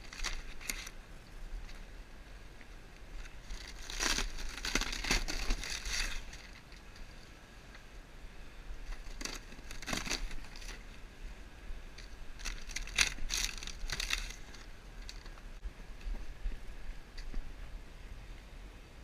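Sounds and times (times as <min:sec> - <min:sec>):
roof debris crunching and crackling: 0:00.0 - 0:01.0, 0:03.0 - 0:07.0, 0:08.8 - 0:11.0, 0:12.0 - 0:15.5.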